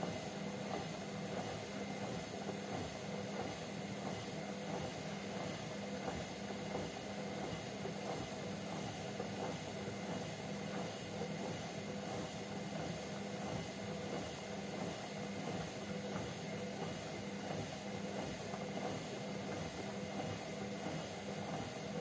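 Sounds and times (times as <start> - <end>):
washing machine motor humming: 0.0 - 22.0.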